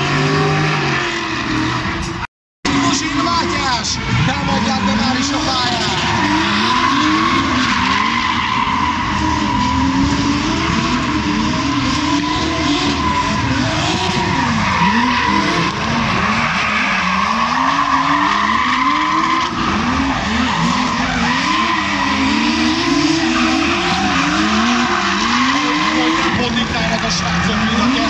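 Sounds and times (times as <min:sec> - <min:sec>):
car engines revving: 0:00.0 - 0:28.0
tyres skidding and squealing: 0:00.0 - 0:28.0.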